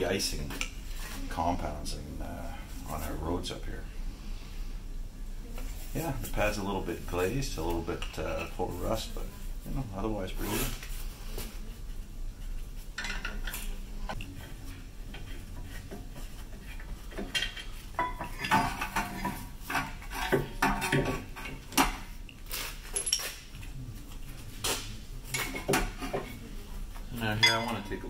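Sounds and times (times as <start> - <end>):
metal tools and parts clinking: 13.0 - 13.8, 17.0 - 21.6, 22.6 - 23.7, 27.2 - 28.0.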